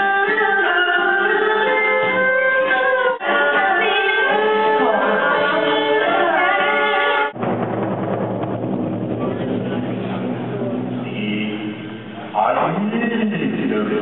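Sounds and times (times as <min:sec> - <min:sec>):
person singing: 0:00.0 - 0:06.9
plucked string instruments: 0:00.0 - 0:13.7.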